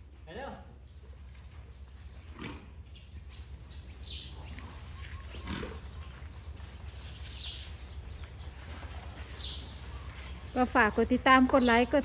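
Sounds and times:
steady low hum: 0.0s - 12.0s
elephants calling: 3.9s - 12.0s.

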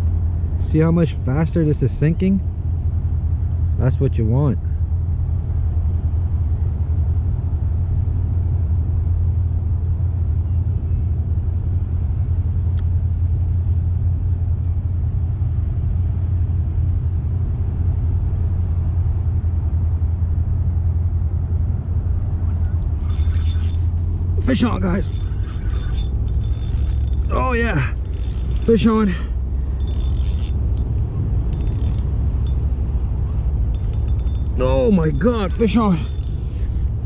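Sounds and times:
fishing reel clicks: 22.9s - 32.6s, 33.2s - 36.9s.

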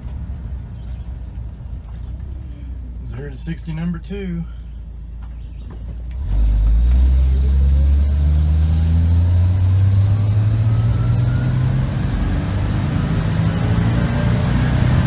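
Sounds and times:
truck engine accelerating: 4.9s - 15.0s.

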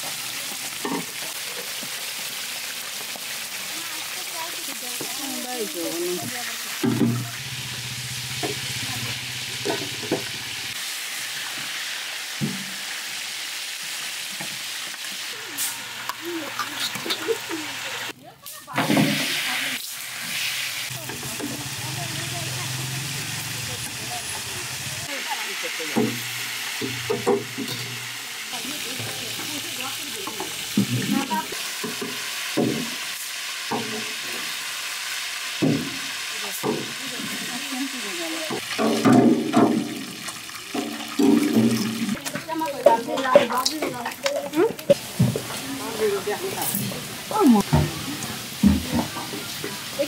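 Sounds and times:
fish sizzling in oil: 0.0s - 50.0s
metal ladles stirring in pan: 14.3s - 18.1s, 18.7s - 50.0s
ladle knocking on pan: 38.7s - 40.1s.

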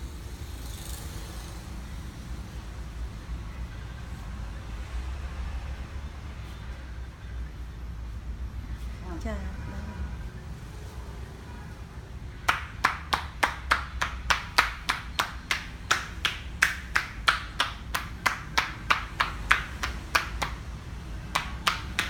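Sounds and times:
hands clapping on a back: 12.4s - 22.0s.

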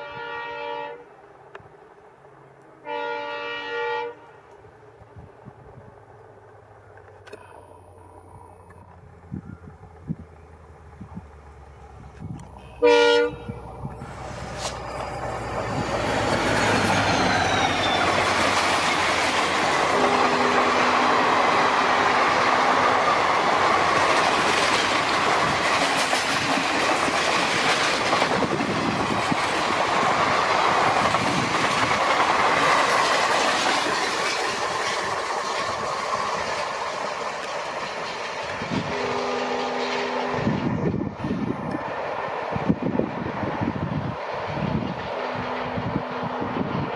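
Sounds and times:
locomotive horn blast: 0.0s - 1.1s, 2.8s - 4.5s, 12.6s - 13.7s, 19.9s - 23.1s, 38.8s - 40.8s, 45.2s - 46.4s
train coaches rushing and clattering: 8.3s - 46.9s.

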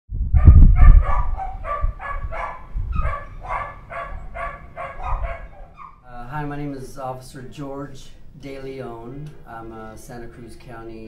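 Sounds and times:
dogs growling low: 0.4s - 6.0s
dogs barking: 0.4s - 6.1s.

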